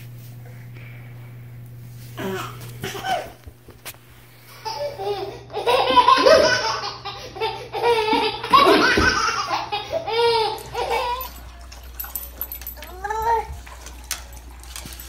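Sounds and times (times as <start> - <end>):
baby laughing: 4.5 - 11.4.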